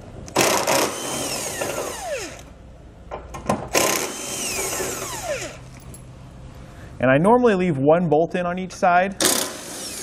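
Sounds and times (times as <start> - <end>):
cordless drill motor whine: 0.4 - 2.5, 3.8 - 5.6.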